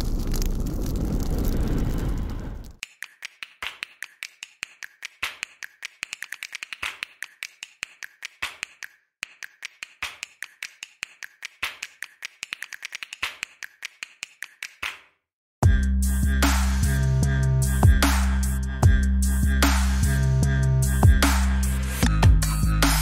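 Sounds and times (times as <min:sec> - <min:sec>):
rapid sharp clicks: 0:02.8 - 0:15.0.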